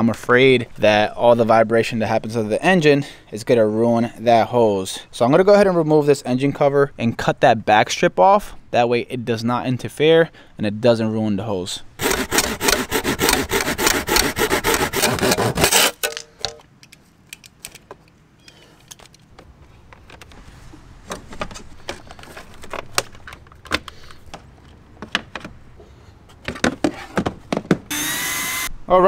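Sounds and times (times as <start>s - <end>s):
hand saw cutting plastic: 12.0s - 16.2s
plastic parts clicking into place: 16.0s - 20.4s, 21.1s - 25.6s.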